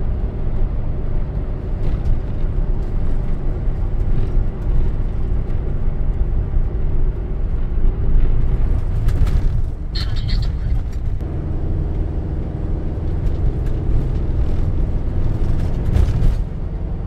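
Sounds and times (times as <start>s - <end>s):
road and engine rumble in vehicle: 0.0s - 17.0s.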